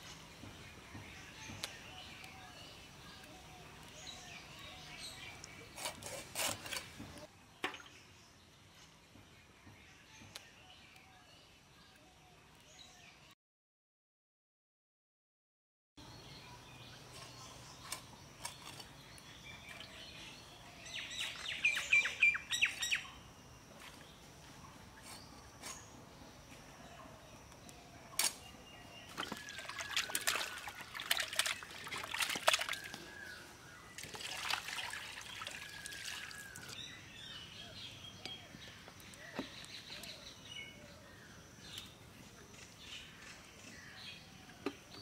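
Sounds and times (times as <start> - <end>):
birds chirping: 16.0 - 45.0
water sloshing in metal bowl: 29.1 - 33.2, 34.0 - 36.8
water poured onto ground: 29.2 - 33.0, 34.0 - 36.8.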